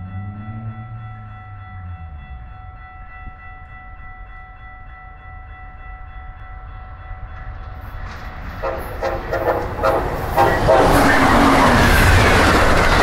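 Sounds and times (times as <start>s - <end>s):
diesel locomotive rumble: 0.0s - 4.2s, 7.4s - 13.0s.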